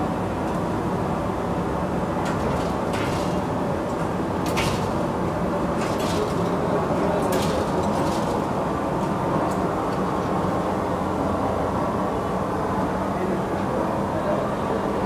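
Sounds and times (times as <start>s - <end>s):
metal knocks and clatters: 2.2s - 5.1s, 5.8s - 6.6s, 7.2s - 8.5s.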